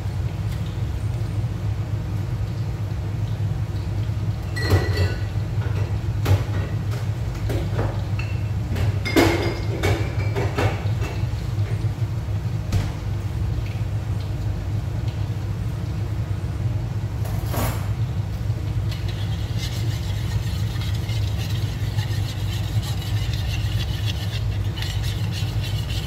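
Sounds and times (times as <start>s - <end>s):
cookware and utensils clinking: 4.5s - 5.3s, 9.0s - 11.3s
steady low hum: 11.1s - 26.0s.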